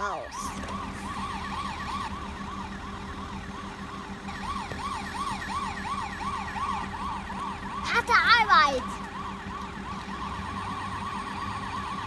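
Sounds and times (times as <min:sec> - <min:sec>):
toy electronic siren yelp: 0:04.3 - 0:09.1.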